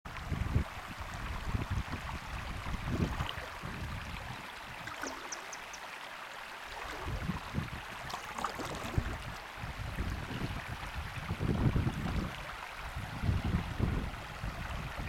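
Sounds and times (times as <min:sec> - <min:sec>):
wind buffeting microphone: 0:00.1 - 0:05.7, 0:06.8 - 0:15.0
water washing around kayak: 0:06.6 - 0:11.1.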